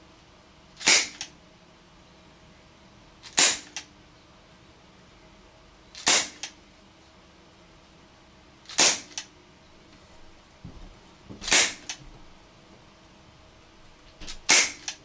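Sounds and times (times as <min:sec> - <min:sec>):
airsoft revolver shots: 0:00.8 - 0:01.2, 0:03.4 - 0:03.8, 0:06.0 - 0:06.5, 0:08.7 - 0:09.2, 0:11.4 - 0:11.9, 0:14.4 - 0:15.0.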